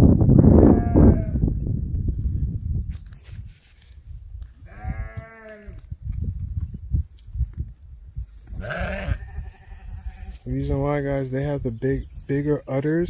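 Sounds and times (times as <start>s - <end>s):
sheep bleating: 4.7s - 5.8s, 8.6s - 10.4s.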